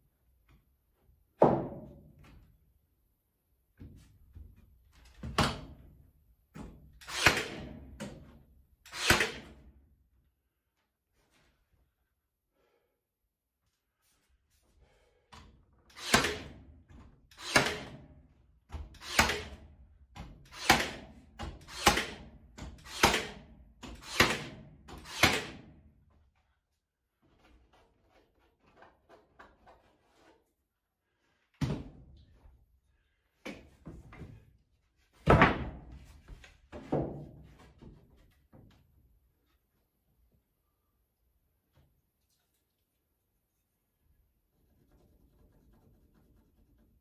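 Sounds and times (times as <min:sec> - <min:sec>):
nail gun firing into wood: 0:07.0 - 0:08.1, 0:08.9 - 0:09.6, 0:15.9 - 0:16.6, 0:17.3 - 0:18.1, 0:18.9 - 0:19.7, 0:20.4 - 0:25.7.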